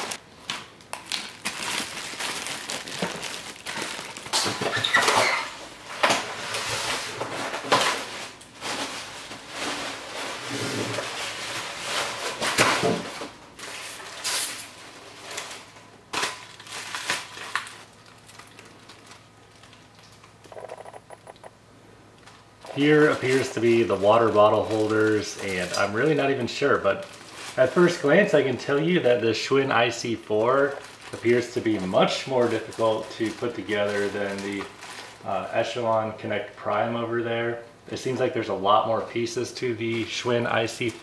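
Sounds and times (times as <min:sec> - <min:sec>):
polystyrene foam scraping: 0:00.0 - 0:00.2, 0:01.1 - 0:17.9, 0:22.6 - 0:36.1
plastic wrap crinkling: 0:00.0 - 0:20.7, 0:22.2 - 0:36.9, 0:39.2 - 0:41.0.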